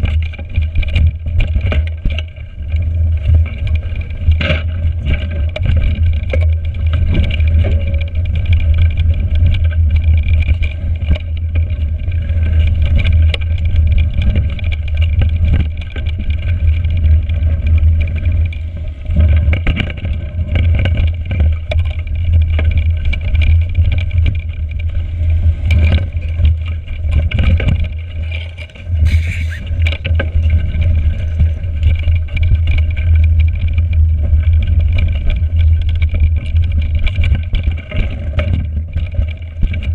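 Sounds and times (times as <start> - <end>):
bike rattling over bumps: 0.0 - 39.9
wind rumble on microphone: 0.0 - 39.9
short hiss: 29.0 - 29.7.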